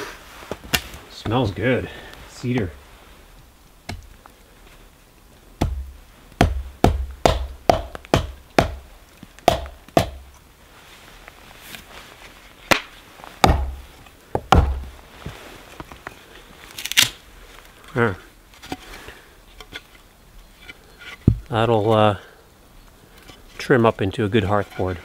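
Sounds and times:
axe chopping wood: 5.6 - 10.3, 12.7 - 13.8, 14.4 - 14.9.

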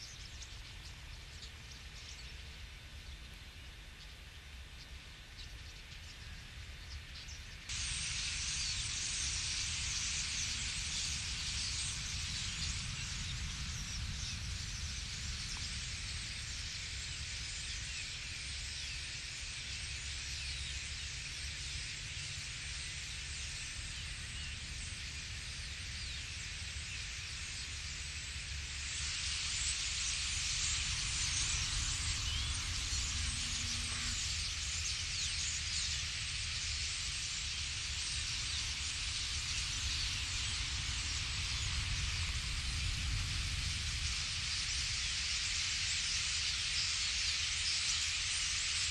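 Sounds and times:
flock of starlings chattering: 0.0 - 2.5, 4.8 - 48.9
low wind rumble on microphone: 0.0 - 48.9.

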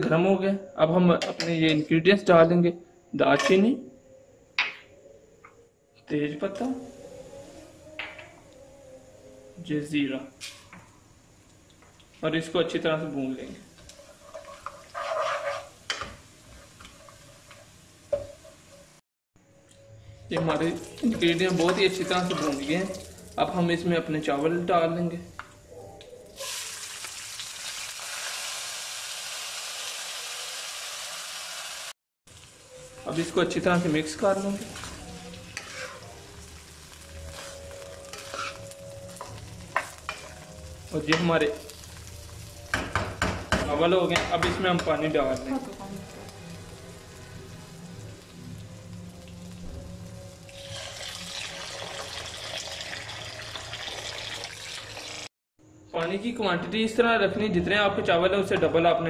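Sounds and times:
rice sizzling in hot oil: 13.1 - 19.0, 20.6 - 23.6, 26.3 - 55.3
water pouring and splashing: 50.5 - 55.3.

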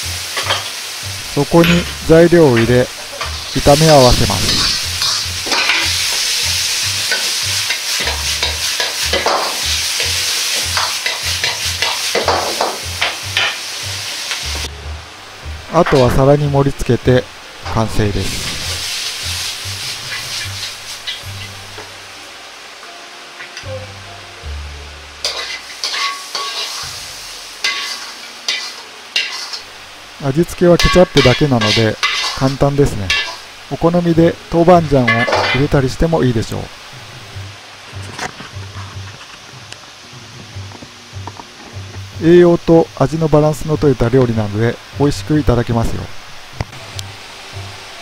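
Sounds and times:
food sizzling in a wok: 0.0 - 48.0
ladle scraping a wok: 3.0 - 6.4, 7.0 - 12.3, 18.2 - 21.6, 25.2 - 29.7, 30.8 - 33.4
hiss of hot sauce: 3.4 - 10.6, 18.0 - 21.1
metal ladle scraping a wok: 4.4 - 6.3, 7.0 - 9.4, 25.2 - 27.0, 27.6 - 29.7, 31.2 - 32.4.

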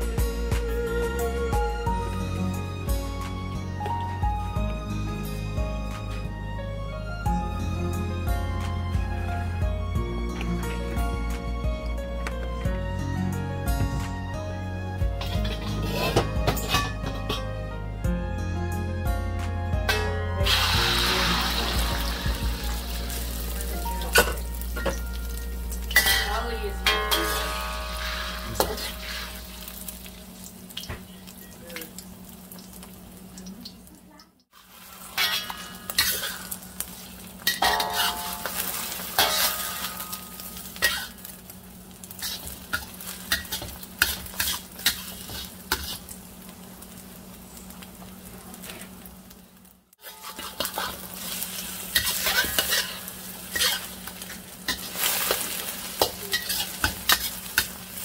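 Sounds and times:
metal spatula scraping a wok: 15.2 - 17.5, 26.0 - 29.9, 34.6 - 41.4, 42.0 - 46.2, 50.0 - 58.0
eggs sizzling in hot oil: 19.8 - 58.0.

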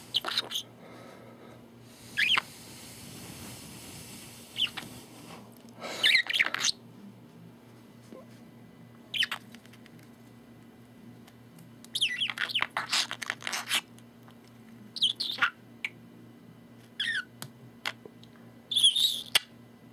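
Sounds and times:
budgerigar chirping: 6.0 - 6.8, 9.1 - 9.4, 12.0 - 13.8, 15.0 - 15.6, 18.7 - 19.5.

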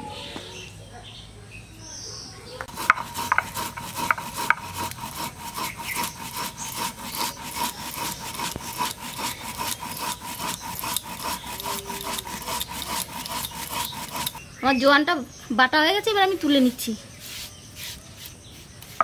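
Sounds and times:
stone roller rasping on slab: 2.6 - 14.4, 17.2 - 19.0.

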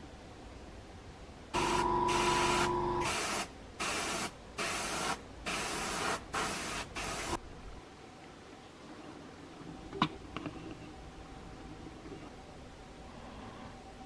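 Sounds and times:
airbrush whistle: 1.6 - 3.4
airbrush spraying air hiss: 1.6 - 7.4.

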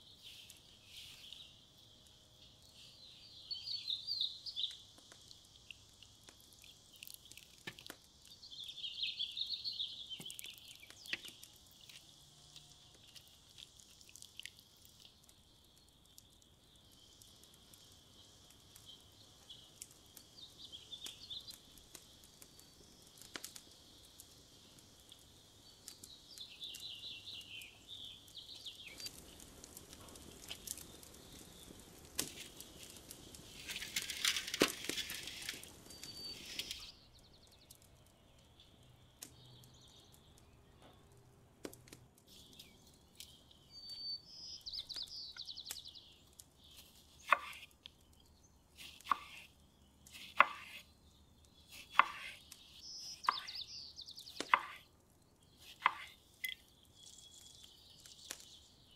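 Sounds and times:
birds chirping: 0.0 - 21.8, 25.4 - 41.3, 42.3 - 58.9
rustling: 28.9 - 36.9
knife chopping on wooden board: 47.3 - 47.6, 50.2 - 50.8, 51.8 - 52.3, 54.4 - 54.8, 55.8 - 56.1.

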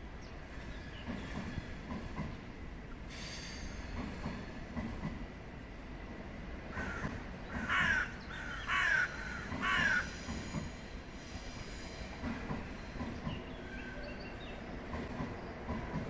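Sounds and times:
train rumbling over bridge: 0.0 - 16.0
loud bird calls: 6.7 - 10.8.

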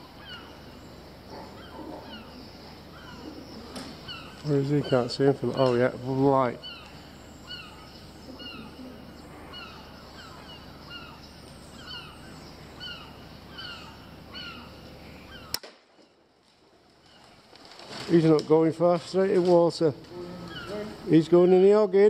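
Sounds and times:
steady low hum: 0.0 - 22.0
bird calling high-pitched notes: 1.6 - 15.6
sharp click: 15.5 - 15.8.

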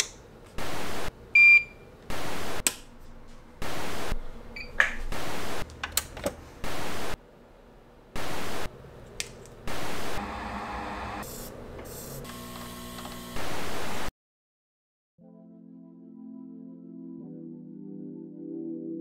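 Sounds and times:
static hiss bursts: 0.6 - 1.1, 2.1 - 2.6, 3.6 - 4.2, 5.1 - 5.6, 6.6 - 7.2, 8.2 - 8.7, 9.7 - 10.2.

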